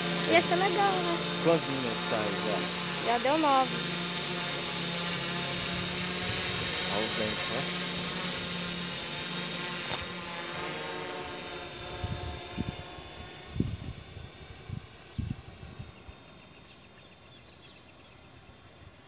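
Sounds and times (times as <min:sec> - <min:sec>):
drone propellers buzzing: 0:00.0 - 0:18.4
wind gusting against microphone: 0:05.5 - 0:07.5, 0:11.7 - 0:16.3.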